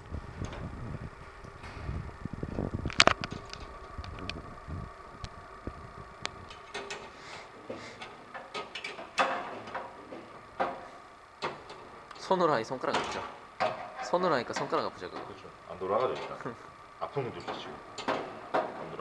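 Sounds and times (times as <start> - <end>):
faint steady hum: 0.0 - 19.0
metal clatter: 6.5 - 15.4.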